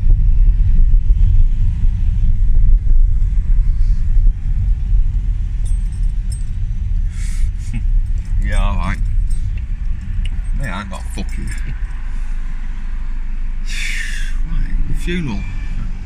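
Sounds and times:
car engine and road rumble: 0:00.0 - 0:16.0
faint light jingles: 0:05.6 - 0:12.1.

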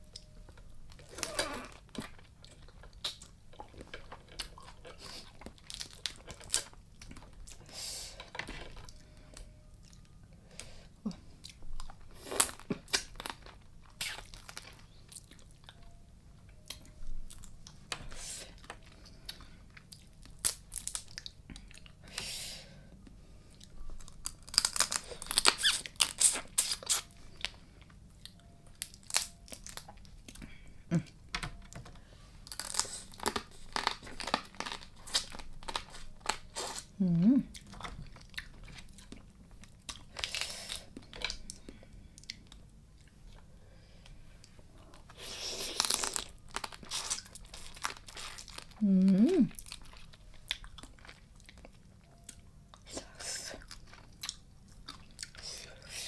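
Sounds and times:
cracking crab shell: 0:24.0 - 0:27.0
chewing: 0:49.5 - 0:52.9, 0:53.6 - 0:55.4.

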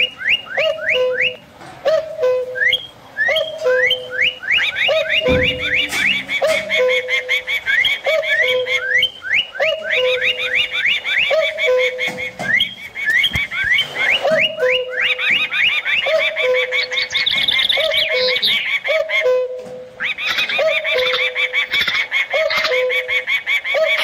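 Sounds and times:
low repeating bird call: 0:00.0 - 0:24.0
high bird chirps and whistles: 0:02.2 - 0:18.8.

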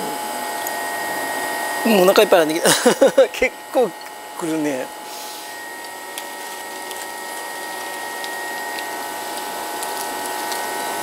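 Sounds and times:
machine hum with whining tones: 0:00.0 - 0:11.0.

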